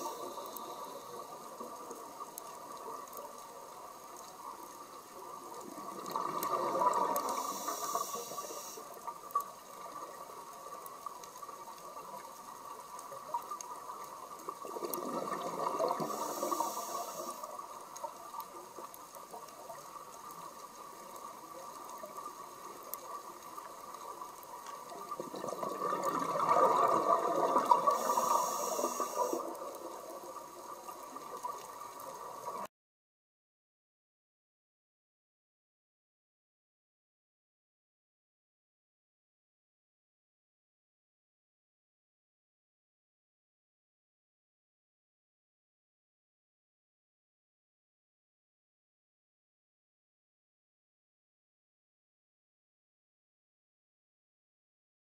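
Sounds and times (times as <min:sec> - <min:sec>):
faint steady hum: 0:00.0 - 0:32.6
underwater exhaled bubbles: 0:00.0 - 0:32.7.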